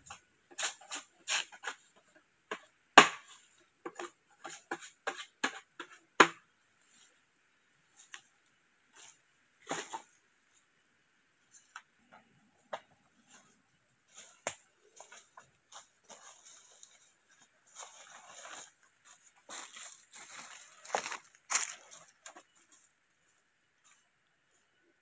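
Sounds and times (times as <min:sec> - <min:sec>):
bamboo sticks cracking and knocking: 0:02.5 - 0:04.2, 0:14.1 - 0:17.0
footsteps crunching through dry leaves: 0:14.1 - 0:24.0.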